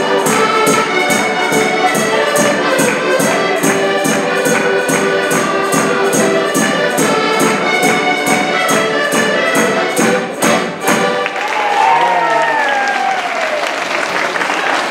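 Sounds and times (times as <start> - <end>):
button accordions playing: 0.0 - 11.4
hand drum beat: 0.3 - 11.2
audience applause: 11.2 - 14.9
audience cheering: 11.2 - 14.9.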